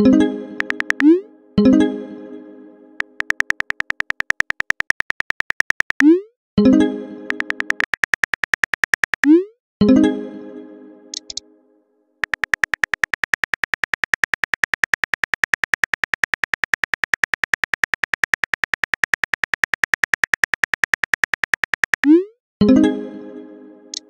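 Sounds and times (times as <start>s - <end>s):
rapid typing clicks: 0.6s - 1.1s, 3.0s - 6.1s, 7.3s - 9.3s, 11.2s - 11.4s, 12.2s - 22.1s.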